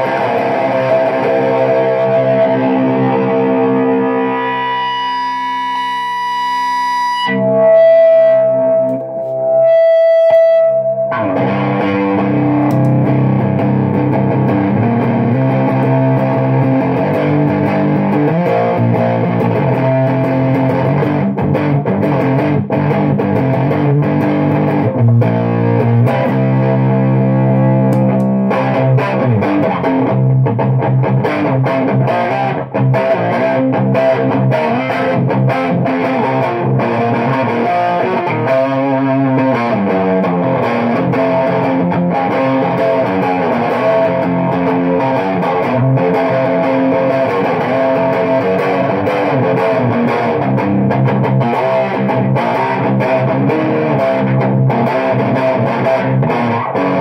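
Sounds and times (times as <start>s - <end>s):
electric guitar sustained note: 0.0s - 21.3s
fuzzed electric guitar chords: 0.0s - 57.0s.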